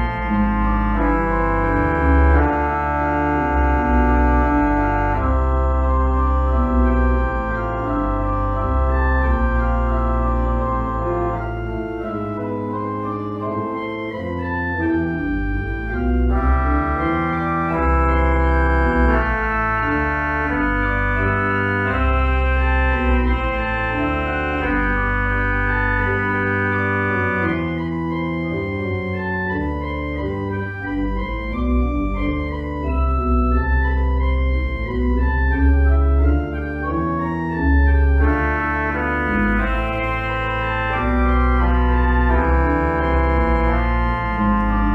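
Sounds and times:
church organ chords: 0.0s - 44.9s
deep organ pedal bass: 0.0s - 44.9s.

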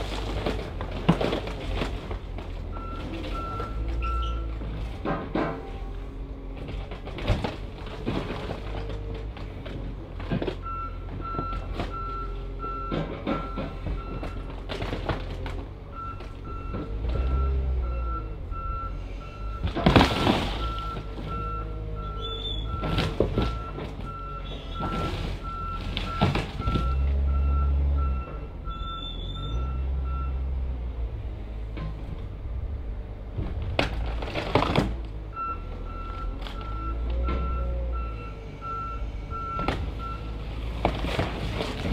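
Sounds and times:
metal car body crunching: 0.0s - 5.9s, 19.6s - 21.5s, 22.1s - 27.0s, 33.4s - 35.2s, 40.6s - 41.9s
heavy machine engine revving: 15.0s - 41.9s.

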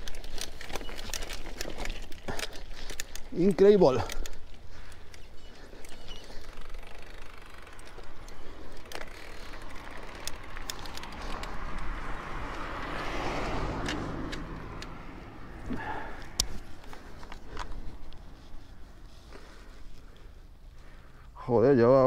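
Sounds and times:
bike rattling over rough ground: 0.0s - 22.0s
rushing tyre noise: 4.6s - 20.4s.

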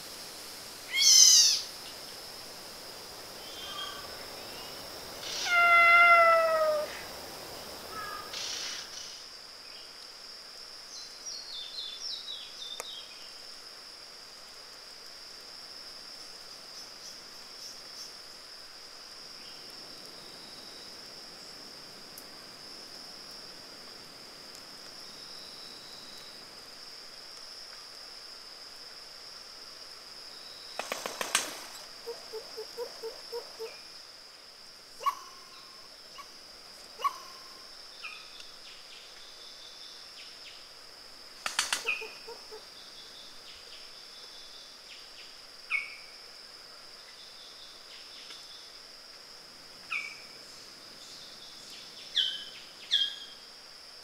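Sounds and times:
bird calling: 0.9s - 1.7s, 5.2s - 7.1s.

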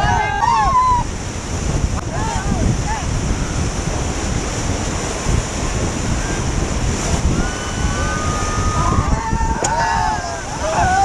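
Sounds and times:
people shouting: 0.0s - 1.0s, 2.1s - 3.1s, 7.3s - 11.0s
white-water rapids rushing: 0.0s - 11.0s
wind buffeting microphone: 0.0s - 11.0s.

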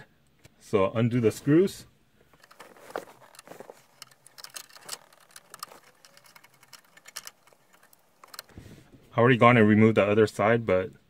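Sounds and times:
screwdriver clicking and ticking: 2.4s - 8.5s.

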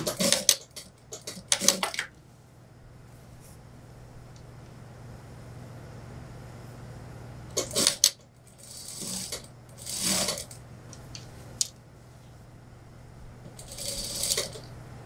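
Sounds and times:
sewing machine clicks: 0.0s - 2.0s, 7.5s - 10.6s, 13.6s - 14.7s
low steady hum: 0.0s - 15.0s.

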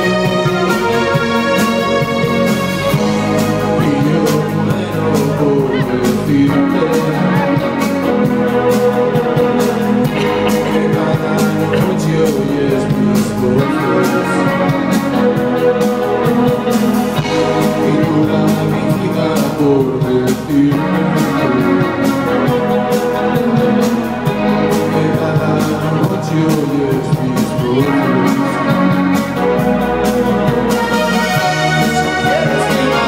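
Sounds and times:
person singing: 0.0s - 29.2s, 30.8s - 33.0s
electric guitar: 0.0s - 33.0s
organ-like keyboards: 0.0s - 33.0s
drum beat: 9.2s - 13.7s, 31.4s - 33.0s.

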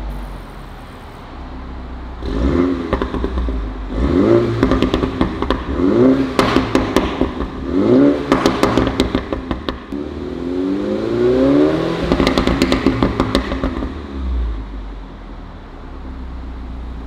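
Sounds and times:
car engine revving: 0.0s - 15.2s
exhaust crackles and pops: 2.2s - 3.8s, 4.5s - 10.0s, 12.0s - 14.0s.

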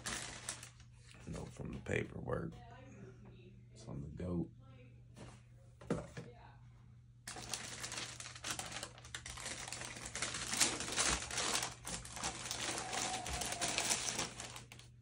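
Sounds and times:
tissue paper rustling and crinkling: 0.0s - 0.9s, 7.3s - 15.0s.

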